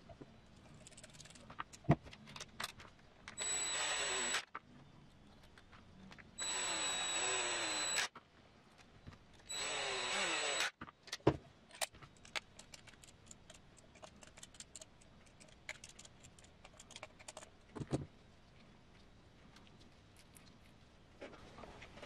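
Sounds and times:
clicks of small parts handled: 0:00.7 - 0:03.4, 0:10.8 - 0:18.0
electric screwdriver whining: 0:03.4 - 0:04.5, 0:06.4 - 0:08.1, 0:09.5 - 0:10.8.

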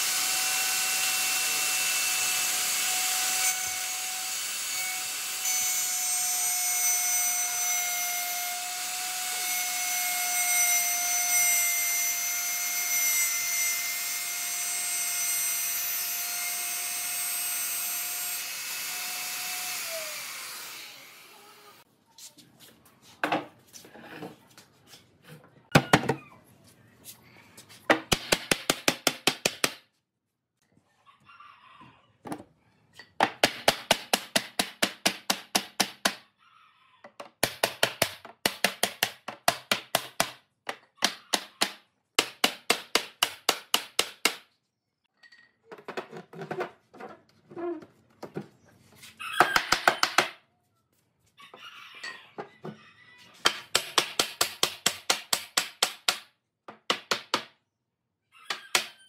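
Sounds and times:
mallet knocking wooden joints: 0:53.5 - 0:57.6.

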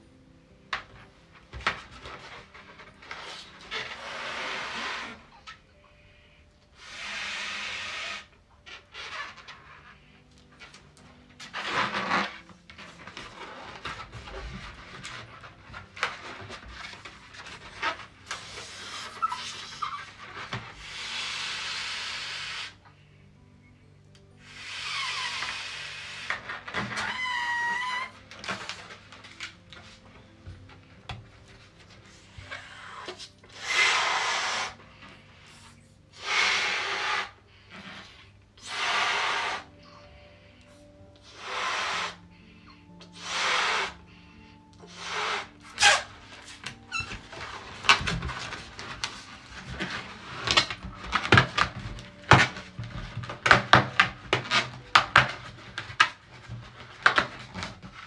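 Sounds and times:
breath blowing up balloon: 0:03.1 - 0:05.6, 0:06.8 - 0:09.6, 0:17.8 - 0:22.8, 0:24.4 - 0:28.8, 0:32.1 - 0:55.4.

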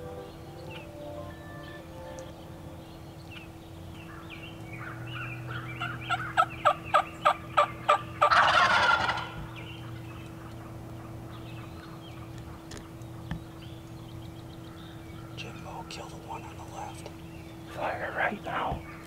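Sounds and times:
turkey yelping: 0:04.8 - 0:12.7
turkey gobbling: 0:04.8 - 0:12.8.

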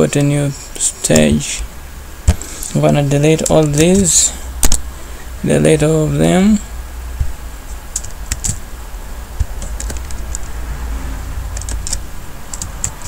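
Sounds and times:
steady low hum: 0:00.0 - 0:13.0
keyboard keys clicking: 0:07.9 - 0:08.6, 0:09.4 - 0:10.4, 0:11.5 - 0:13.0.

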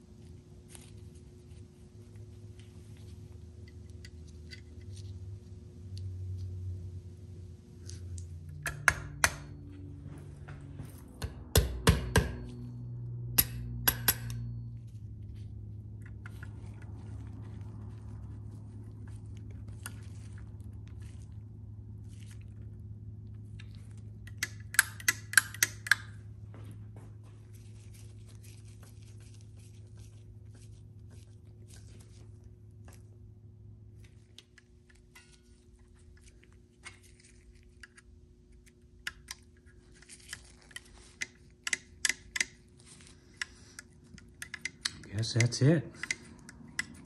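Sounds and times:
low steady hum: 0:00.0 - 0:47.0
metal clicks of screwdriver: 0:44.4 - 0:46.2.

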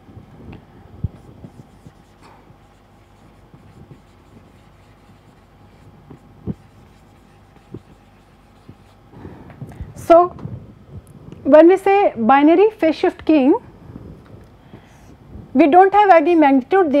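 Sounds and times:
marker scratching on whiteboard: 0:01.2 - 0:09.0.

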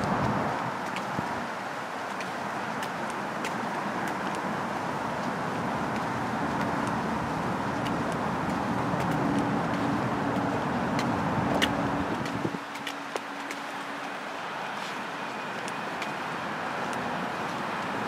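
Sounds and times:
vehicle engine rumbling: 0:05.3 - 0:18.0.

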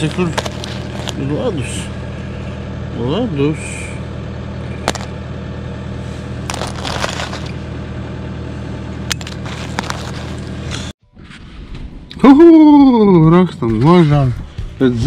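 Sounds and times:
ice crunching and cracking: 0:00.0 - 0:01.3, 0:06.4 - 0:07.6, 0:09.1 - 0:10.9
petrol generator humming: 0:00.0 - 0:11.0.

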